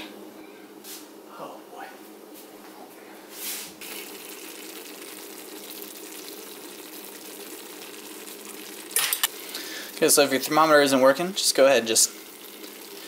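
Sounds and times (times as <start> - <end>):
sauce bubbling in a skillet: 3.8 - 13.0.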